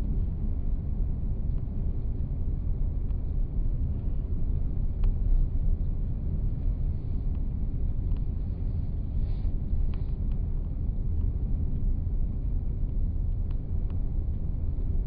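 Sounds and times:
faint tick: 2.9s - 6.0s, 7.2s - 15.0s.

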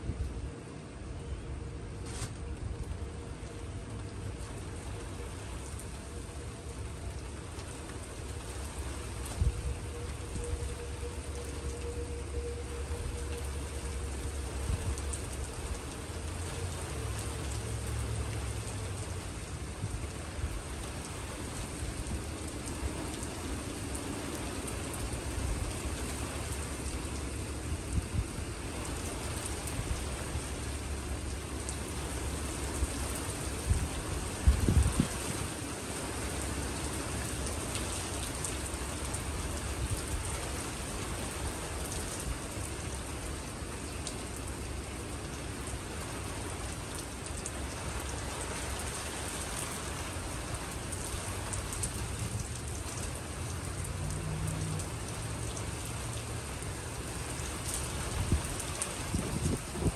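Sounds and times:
heavy rain pattering: 0.0s - 59.9s.

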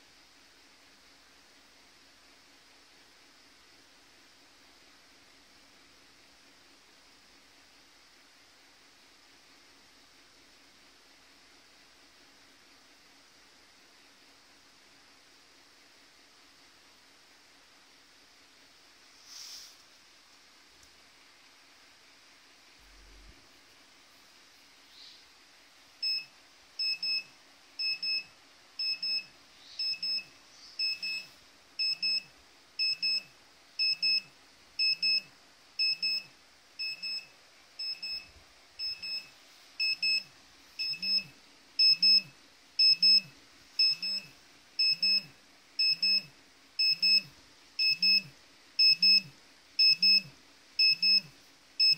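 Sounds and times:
dosimeter alarm beeping in pairs: 26.0s - 51.9s.

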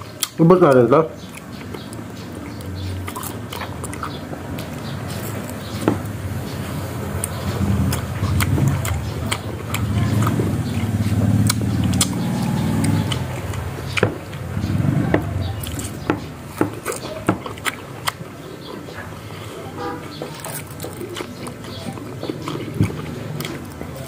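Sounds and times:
wet lip smacks eating mango: 7.2s - 14.4s.

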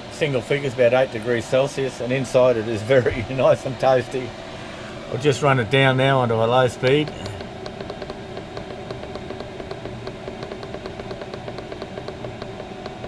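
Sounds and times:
heater blower hum: 0.0s - 13.0s
fast even ticking: 5.7s - 13.0s.

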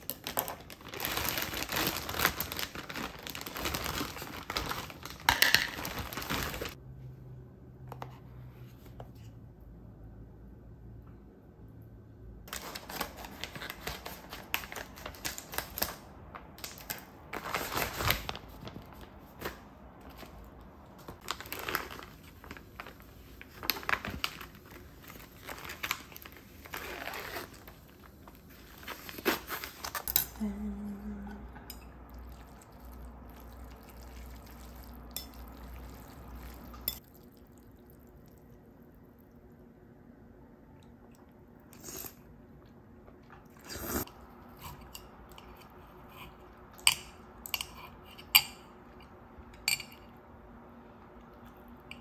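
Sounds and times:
plastic pouches crinkling: 0.0s - 6.8s, 21.0s - 30.4s
low hum: 30.2s - 36.9s.

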